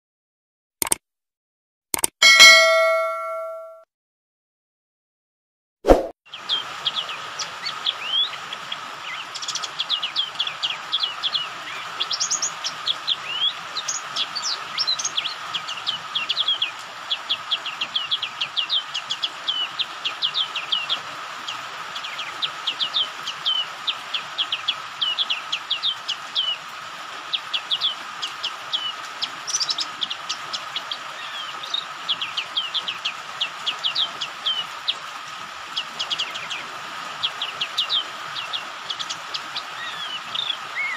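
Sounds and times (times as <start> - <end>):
bird chirping high: 2.2 - 3.8
rain hissing: 6.3 - 40.9.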